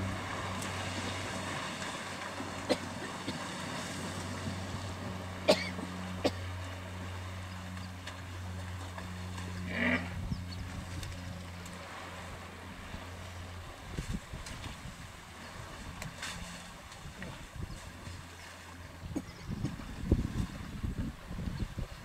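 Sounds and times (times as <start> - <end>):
low engine hum: 0.0 - 22.0
hippo snorting: 9.6 - 10.2.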